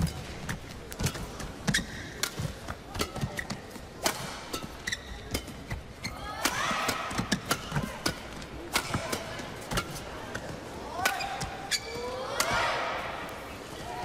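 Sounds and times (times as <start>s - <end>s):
racquets hitting shuttlecock: 0.0s - 13.4s
shoe squeaks: 1.7s - 2.2s, 4.6s - 6.2s, 11.2s - 12.2s.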